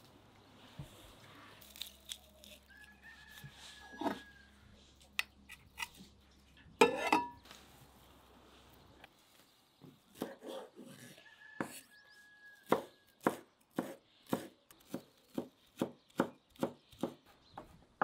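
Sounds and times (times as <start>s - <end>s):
herbs rustling: 0.4s - 5.1s
knife chopping on wooden board: 12.7s - 17.2s.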